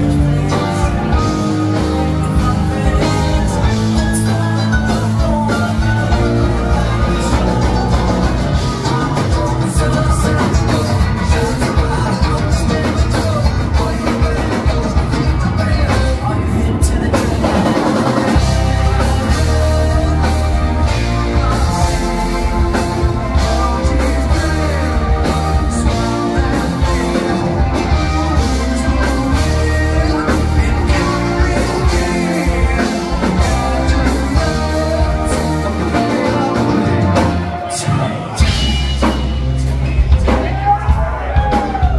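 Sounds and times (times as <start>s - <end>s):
rock band playing live: 0.0s - 41.9s.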